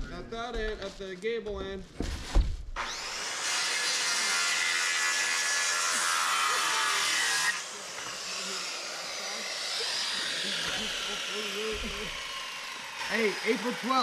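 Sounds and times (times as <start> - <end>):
circular saw cutting wood: 2.8 - 14.0
saw blade winding down: 2.8 - 14.0.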